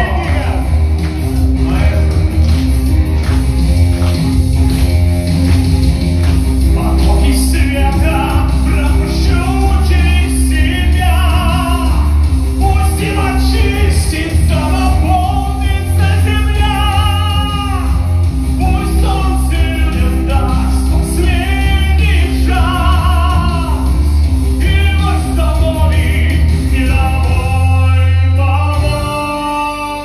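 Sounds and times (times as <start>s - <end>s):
man singing into microphone: 0.0s - 0.9s, 6.7s - 24.0s, 24.6s - 30.0s
instrumental accompaniment with bass: 0.0s - 30.0s.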